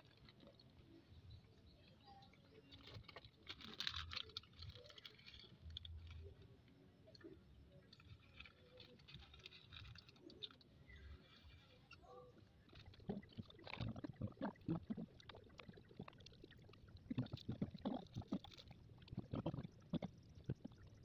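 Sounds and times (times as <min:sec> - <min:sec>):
plastic snack bag crinkling: 0:02.8 - 0:06.3, 0:08.0 - 0:10.7, 0:12.6 - 0:20.1.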